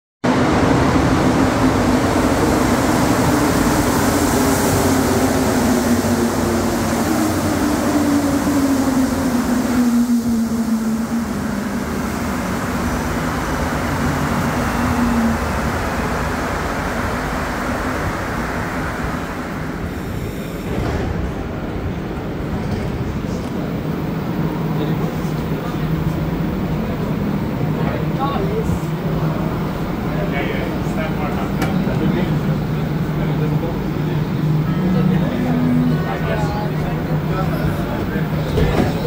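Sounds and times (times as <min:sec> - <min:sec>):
train rumble and hiss: 0:00.3 - 0:39.0.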